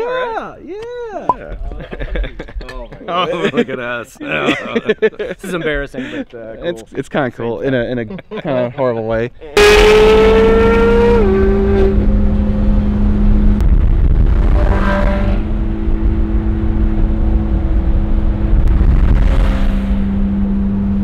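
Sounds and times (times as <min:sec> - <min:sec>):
low road rumble: 0:09.3 - 0:21.0
car engine inside cabin: 0:09.6 - 0:21.0.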